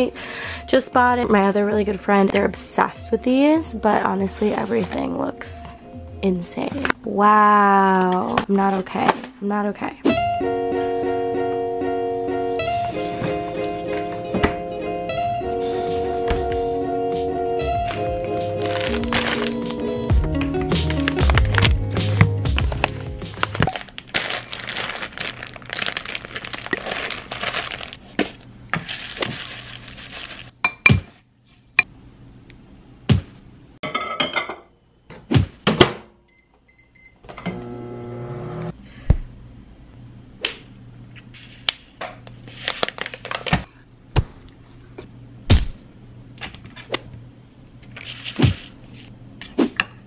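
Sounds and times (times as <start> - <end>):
background music: 0.0 - 7.1, 10.1 - 23.7
plastic packaging crinkling: 17.9 - 30.5, 42.5 - 43.6
microwave keypad beeps: 36.3 - 37.6
microwave oven humming: 36.3 - 41.1.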